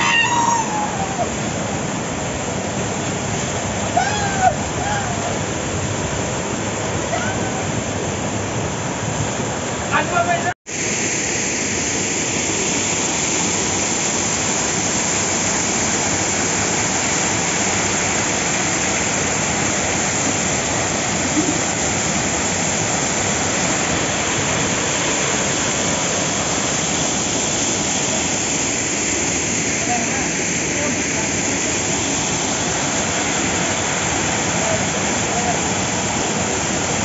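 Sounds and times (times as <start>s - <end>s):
waterfall pouring onto rocks: 9.9s - 37.0s.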